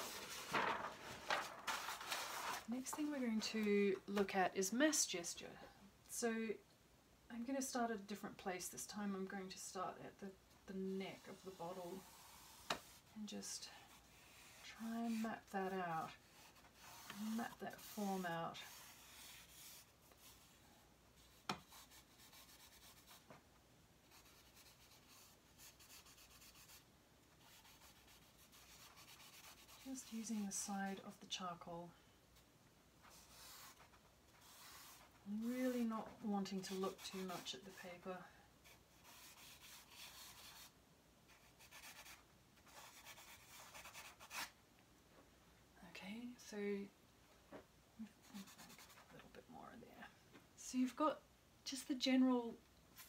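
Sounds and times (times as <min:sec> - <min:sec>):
charcoal rubbing on paper: 0:11.2 - 0:20.6, 0:21.2 - 0:23.2, 0:24.0 - 0:26.8, 0:27.4 - 0:30.4, 0:33.0 - 0:37.8, 0:38.6 - 0:40.7, 0:41.3 - 0:44.5, 0:48.3 - 0:49.1.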